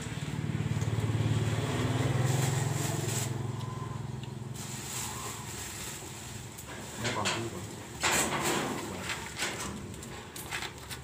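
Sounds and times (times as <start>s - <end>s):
vehicle engine passing: 0.0s - 6.6s.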